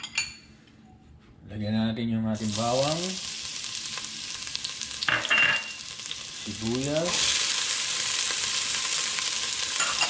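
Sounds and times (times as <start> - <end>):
garlic sizzling in hot oil: 2.4 - 10.0
pot clatter: 9.8 - 10.0.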